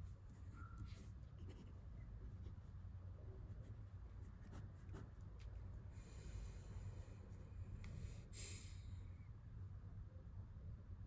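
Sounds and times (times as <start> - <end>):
pen scratching on paper: 0.0 - 5.3
low steady hum: 0.0 - 11.0.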